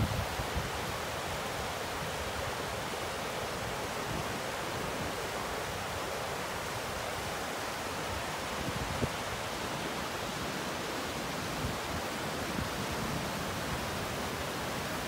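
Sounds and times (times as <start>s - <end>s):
water rushing over rocks: 0.0s - 15.0s.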